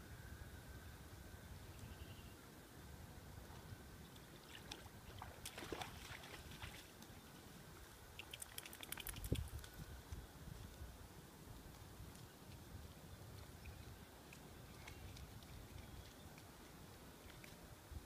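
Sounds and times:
dog splashing through water: 4.4s - 6.9s.

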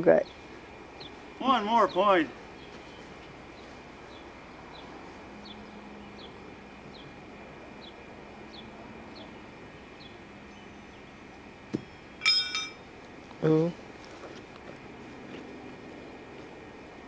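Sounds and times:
steady background hiss: 0.0s - 17.0s
bird chirps: 2.6s - 7.2s, 7.8s - 12.0s
horseshoe clanging on metal: 12.2s - 12.8s.

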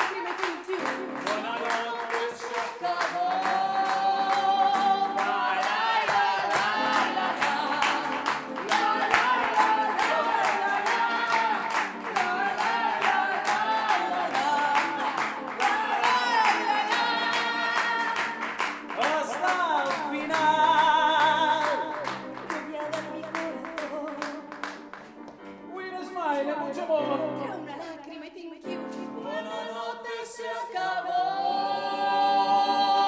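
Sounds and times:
woman and man singing: 0.0s - 24.7s, 25.7s - 33.0s
sharp clap-like beat: 0.0s - 25.4s.

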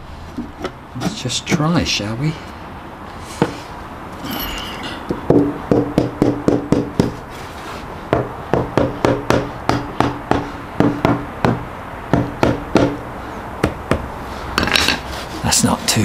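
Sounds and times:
hammer knocking on wood: 5.2s - 7.2s, 8.1s - 13.0s.

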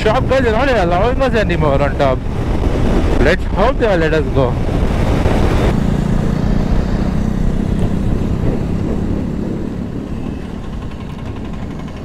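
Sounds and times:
wind rush: 0.0s - 12.0s
motorcycle engine running: 4.5s - 12.0s.

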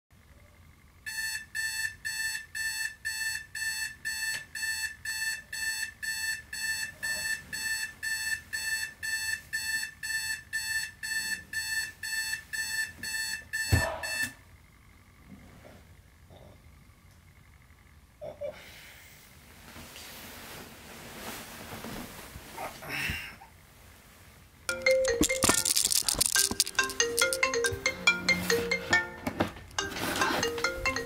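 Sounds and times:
thump of alarm switched off: 13.0s - 14.4s.

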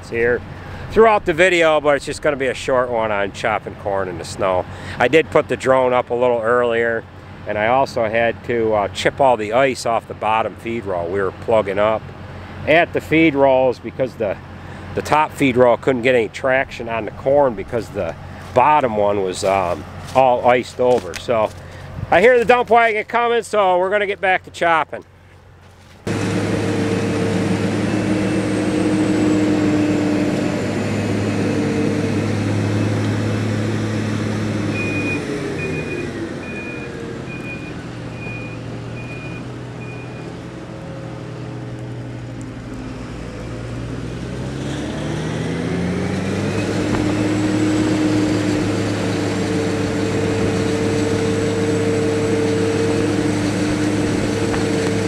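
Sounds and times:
diesel engines droning: 0.0s - 55.0s.

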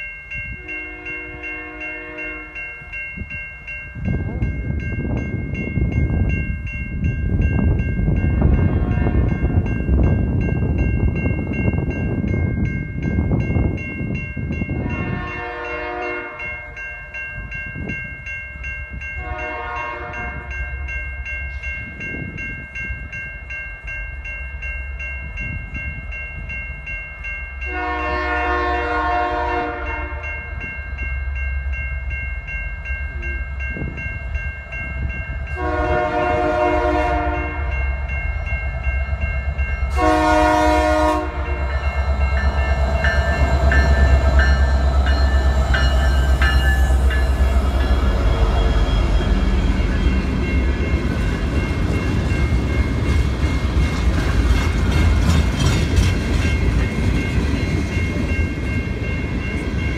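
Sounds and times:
crossing bell ringing: 0.0s - 59.9s
locomotive air horn blasts: 0.6s - 2.6s, 8.6s - 9.4s, 14.9s - 16.6s, 19.2s - 20.5s, 27.7s - 30.3s, 35.6s - 37.7s, 39.9s - 41.7s
locomotive rumble: 33.0s - 59.9s.

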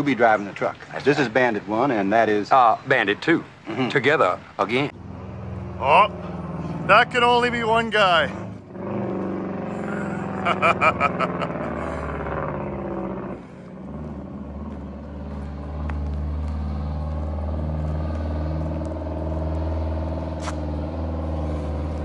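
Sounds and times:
diesel truck driving by: 4.9s - 22.0s.

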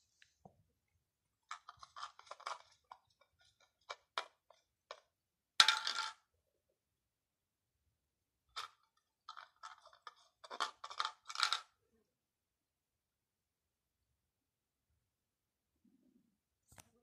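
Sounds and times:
cup clattering on concrete: 1.5s - 6.2s, 8.6s - 11.7s.

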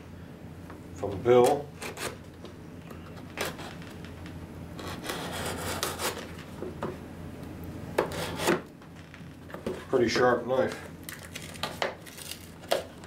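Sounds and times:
knife sawing through cardboard: 4.8s - 6.3s, 8.1s - 8.6s.

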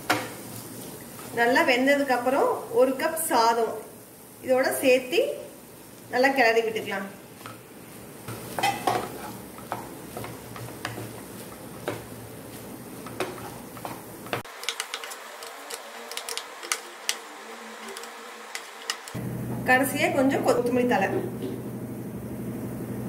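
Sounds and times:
spatula scraping a frying pan: 7.4s - 19.2s.

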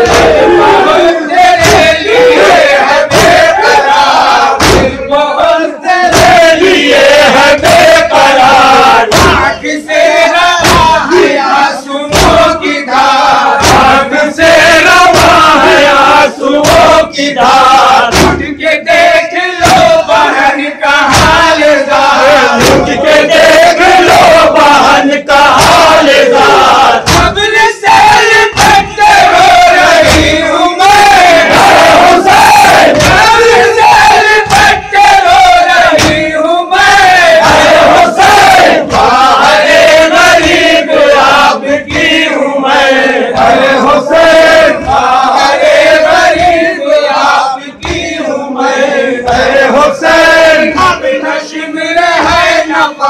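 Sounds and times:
men chanting through a pa: 0.0s - 53.0s
hands slapping chest: 3.1s - 3.5s, 4.6s - 5.0s, 6.1s - 6.5s, 12.1s - 12.6s, 13.6s - 14.0s, 15.0s - 16.0s, 22.6s - 24.4s, 28.5s - 30.4s, 31.0s - 33.3s, 34.0s - 36.3s, 47.8s - 48.2s.

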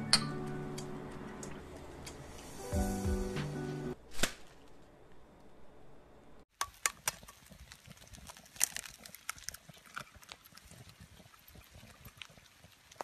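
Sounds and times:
egg cracking: 6.5s - 13.0s
food crackling in skillet: 6.5s - 13.0s.

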